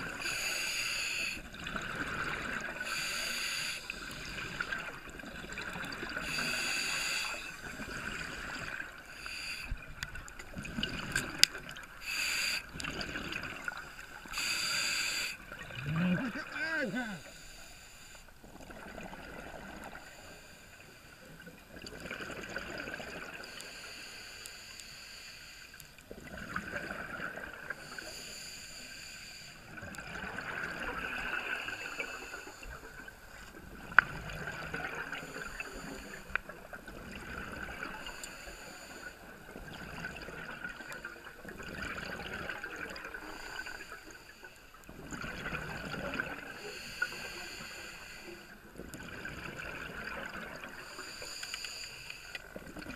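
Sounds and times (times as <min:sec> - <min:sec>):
bubbling exhaust underwater: 0:00.0 - 0:17.2, 0:18.4 - 0:20.4, 0:21.3 - 0:23.9, 0:26.0 - 0:28.4, 0:29.6 - 0:44.2, 0:44.8 - 0:51.6
regulator hissing inhale: 0:00.2 - 0:01.4, 0:02.8 - 0:04.4, 0:06.2 - 0:07.7, 0:09.0 - 0:09.9, 0:12.0 - 0:12.7, 0:14.2 - 0:15.4, 0:17.2 - 0:18.4, 0:20.0 - 0:21.4, 0:23.4 - 0:25.8, 0:27.8 - 0:29.7, 0:35.2 - 0:36.5, 0:37.9 - 0:39.3, 0:43.2 - 0:44.8, 0:46.5 - 0:48.6, 0:50.8 - 0:52.5.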